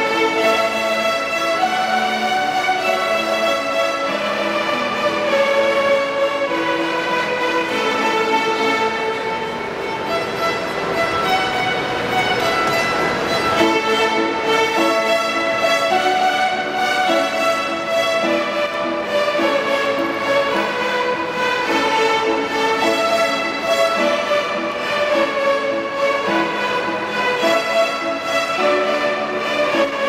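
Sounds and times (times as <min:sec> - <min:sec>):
children playing violins: 0:00.0 - 0:30.0.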